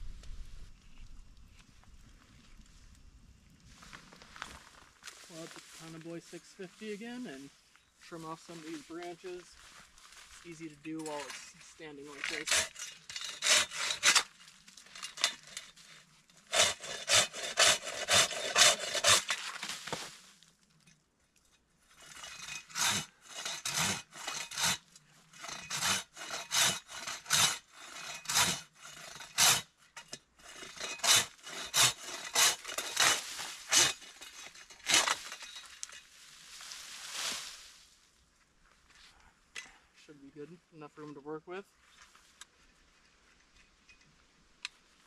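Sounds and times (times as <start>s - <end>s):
hand saw cutting branches: 10.5s - 20.1s, 21.9s - 36.1s.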